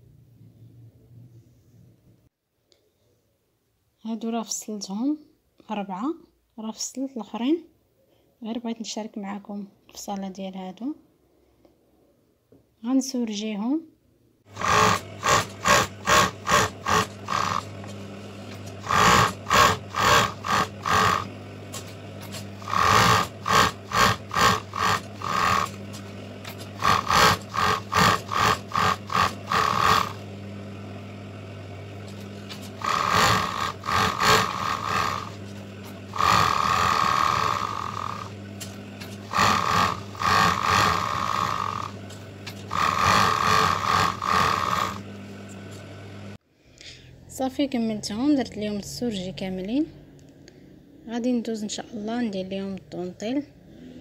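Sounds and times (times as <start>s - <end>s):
overlock sewing machine running: 14.5s - 46.4s
steady motor hum: 14.5s - 46.4s.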